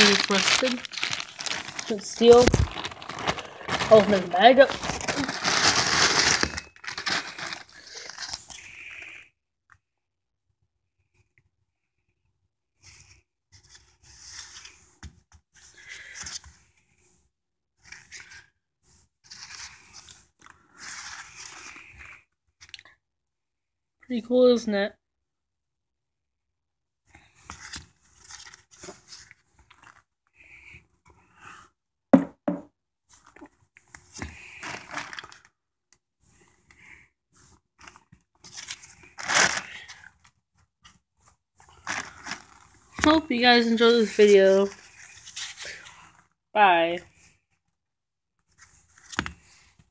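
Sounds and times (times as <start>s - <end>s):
gloved hands rustling and scraping: 0.0s - 8.9s, 33.1s - 35.5s, 36.2s - 46.3s
metal spike knocking on carpeted floor: 32.2s - 32.7s.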